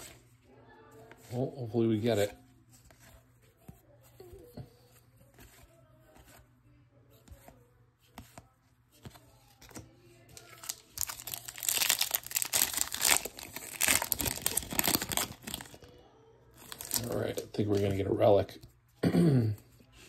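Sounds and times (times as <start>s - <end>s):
wrapper crinkling and tearing: 10.4s - 15.9s, 16.6s - 17.5s.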